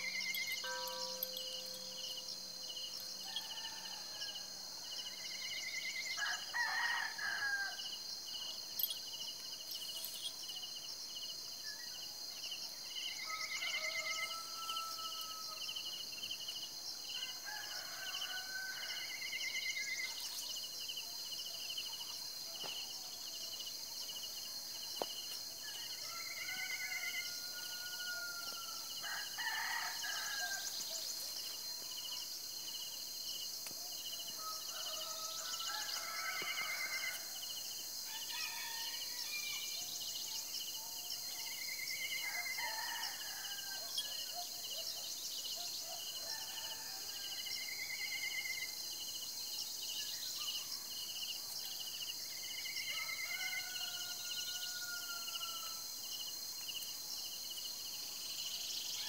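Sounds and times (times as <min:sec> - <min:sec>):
rooster crowing: 0:00.0 - 0:04.6, 0:06.1 - 0:07.9, 0:13.2 - 0:15.7, 0:17.2 - 0:19.2, 0:25.7 - 0:30.8, 0:34.4 - 0:37.4, 0:38.1 - 0:39.6, 0:42.2 - 0:44.0, 0:46.2 - 0:47.6, 0:52.7 - 0:55.8
insects chirping: 0:00.0 - 0:59.0.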